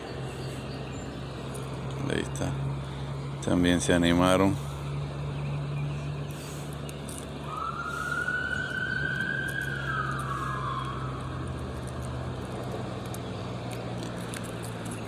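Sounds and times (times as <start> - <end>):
steady low hum: 0.0 - 15.0
siren wailing: 7.4 - 12.2.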